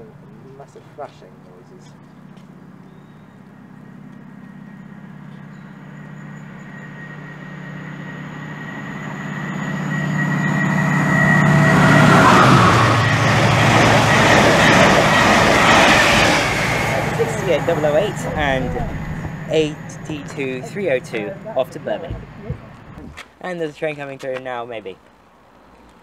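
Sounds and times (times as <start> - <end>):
diesel locomotive engine thrash: 3.4 - 23.3
train wheels on rail: 3.5 - 24.3.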